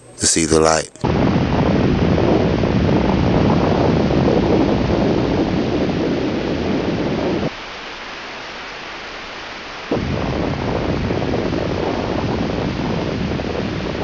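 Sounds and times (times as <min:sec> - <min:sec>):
deep rumble: 0:01.1 - 0:07.5, 0:09.9 - 0:14.0.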